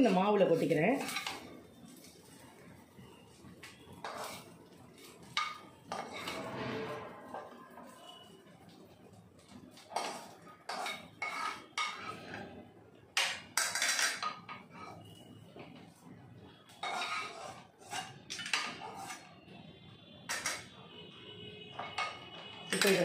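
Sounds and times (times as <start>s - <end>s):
metal spatula scraping a pan: 0.0s - 2.5s, 3.2s - 8.4s, 9.7s - 15.3s, 16.6s - 19.5s, 20.3s - 20.8s, 21.7s - 23.0s.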